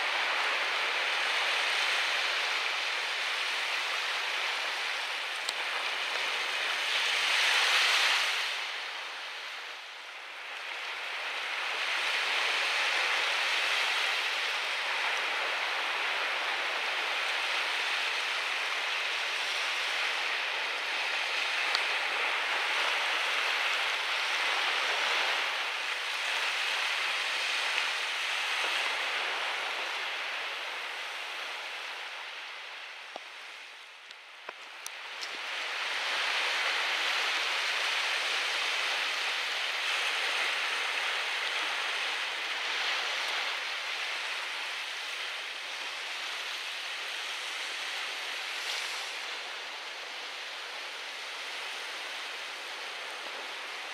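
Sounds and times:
sea waves rushing: 0.0s - 53.9s
wind: 0.0s - 53.9s.

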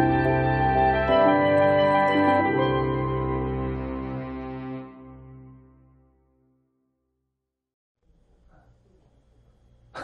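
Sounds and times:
held music chord: 0.0s - 6.2s.

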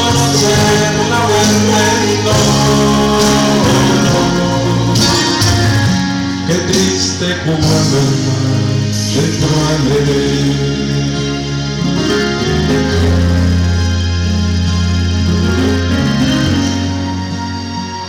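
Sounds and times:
man singing a hymn: 0.0s - 11.8s
instrumental accompaniment: 0.0s - 18.0s.

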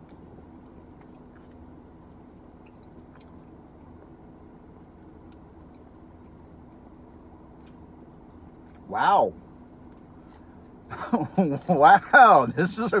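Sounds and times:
person quietly chewing: 0.0s - 4.1s, 4.8s - 8.9s
steady low hum: 0.0s - 13.0s.

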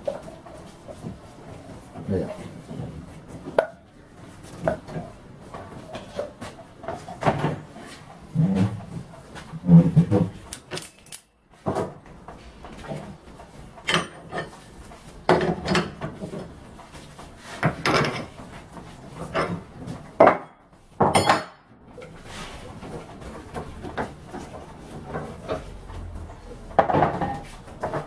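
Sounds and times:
metal tools clanking and scraping: 13.8s - 14.7s.

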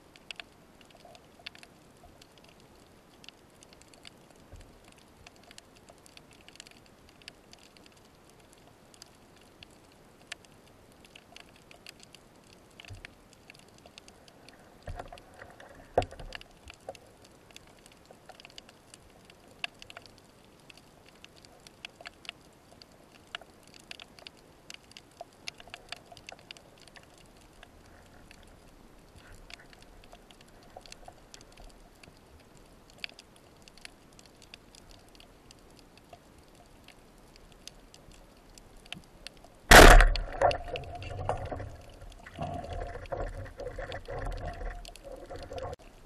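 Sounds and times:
faint underwater hiss: 0.0s - 46.0s
small underwater clicks and crackles: 0.0s - 46.0s.

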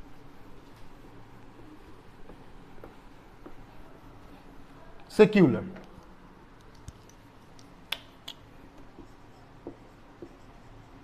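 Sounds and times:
marker tapping on whiteboard: 6.7s - 10.6s.

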